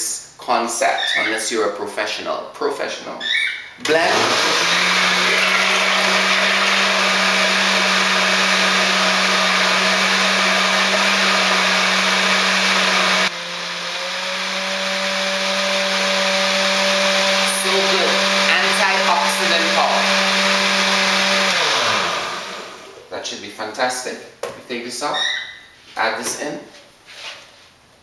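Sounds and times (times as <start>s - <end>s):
blender motor whine: 3.8s - 23.0s.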